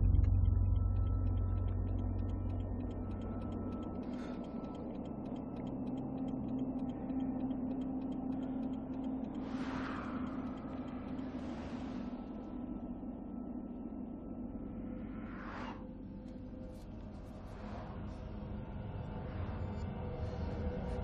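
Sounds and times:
irregular ticking: 0.0s - 11.7s
low drone: 0.0s - 21.0s.

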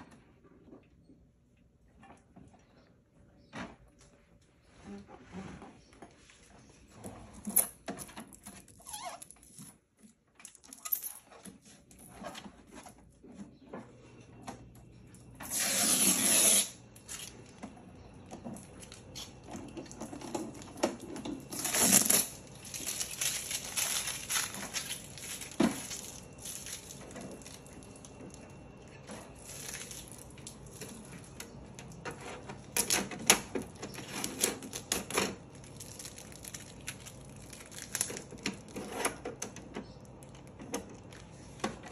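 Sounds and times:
packing tape being peeled: 15.4s - 17.4s, 21.4s - 28.2s, 32.8s - 39.2s
plastic film rustling: 18.6s - 38.9s.

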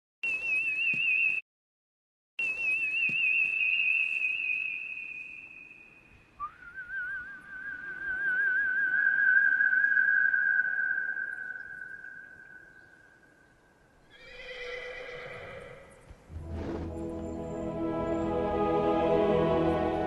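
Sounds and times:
man whistling warbling notes: 6.4s - 12.7s.

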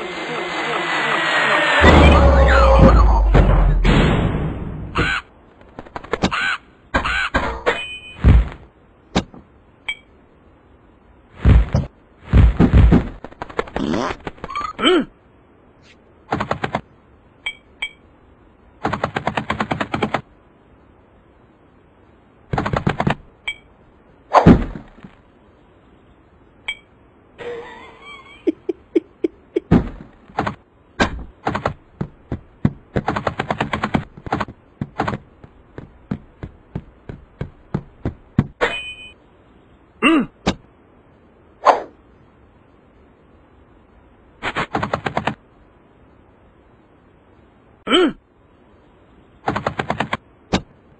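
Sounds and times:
squeaky pitch glides: 0.0s - 3.3s.

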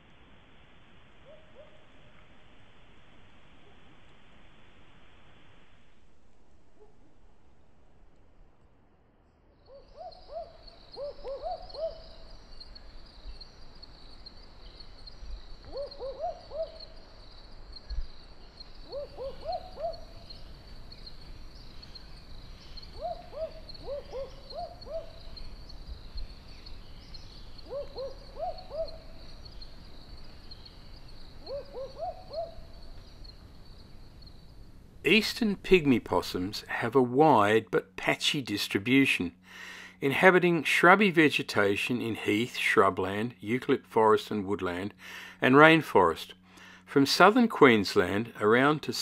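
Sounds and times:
owl hooting: 1.2s - 2.2s, 9.7s - 12.9s, 15.6s - 17.2s, 18.8s - 20.6s, 21.8s - 25.8s, 27.3s - 30.6s, 31.4s - 33.3s.

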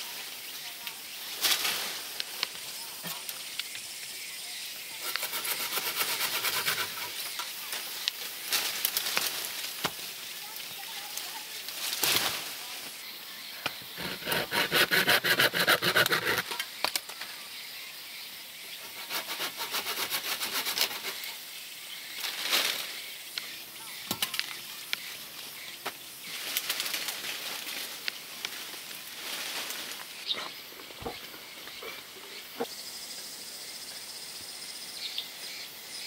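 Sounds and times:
leaves rustling swishes: 0.0s - 3.0s, 5.4s - 13.0s, 22.1s - 23.1s, 26.2s - 30.6s
leafy branch being dragged: 1.2s - 2.5s, 26.2s - 31.2s
hand saw cutting branch: 5.0s - 7.2s, 13.9s - 16.6s, 18.8s - 21.3s.

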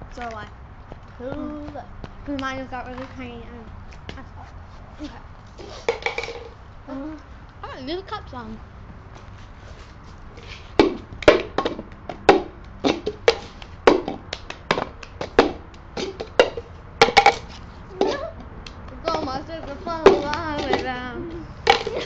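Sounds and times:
voices: 0.0s - 9.4s, 16.5s - 22.0s
hands clapping and slapping: 10.8s - 19.4s, 20.1s - 22.0s.

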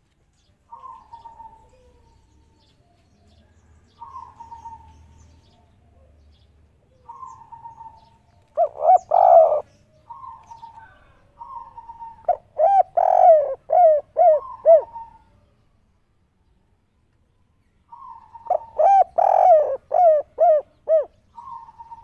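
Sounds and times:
dove cooing: 0.7s - 2.5s, 4.0s - 5.6s, 6.9s - 15.4s, 17.9s - 22.0s.

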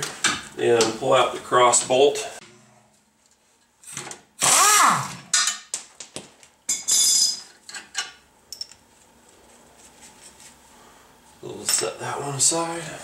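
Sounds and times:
air impact wrench bursts: 4.4s - 5.2s
metallic clinks of bolt and tool: 6.7s - 8.8s.

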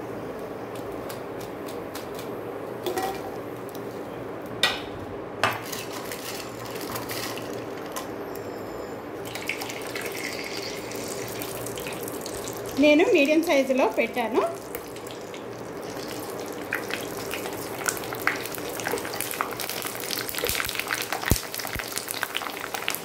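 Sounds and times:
induction cooktop hum: 0.0s - 23.0s
sizzling in hot oil: 9.2s - 23.0s.

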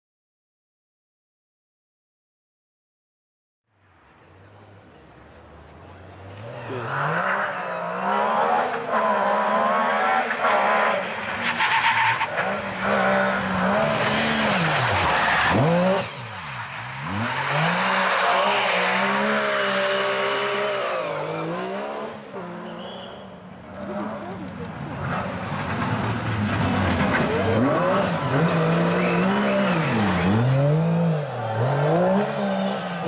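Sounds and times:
rally car engine revving past: 6.3s - 11.2s.

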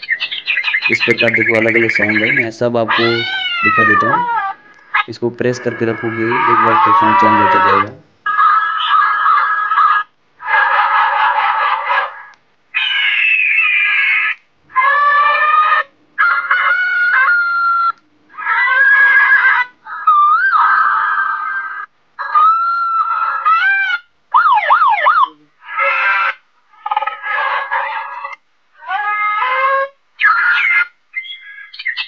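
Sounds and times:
megaphone electronic sound effects: 0.8s - 4.3s
siren wail: 0.9s - 8.4s, 23.4s - 29.9s.

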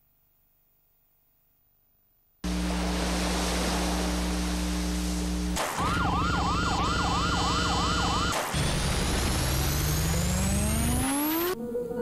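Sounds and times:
dense electronic hiss: 2.2s - 11.6s
steady high electronic tones: 2.5s - 11.6s
low electronic drones: 2.5s - 12.0s
rising electronic glides: 2.5s - 12.0s
warbling siren-like tone: 5.6s - 12.0s.

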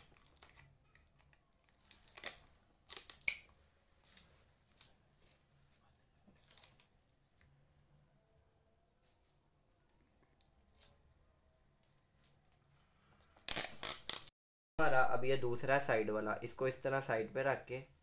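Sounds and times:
adhesive tape tearing: 0.0s - 5.4s, 13.4s - 14.3s.

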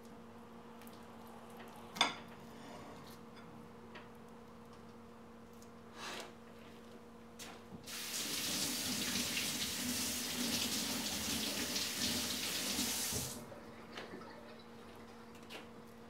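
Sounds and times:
kitchen tap running: 7.8s - 13.4s.

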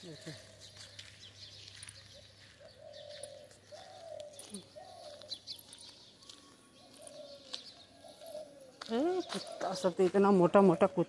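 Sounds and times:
small birds chirping: 0.0s - 11.0s
faint dove cooing: 2.5s - 5.4s, 6.4s - 11.0s.

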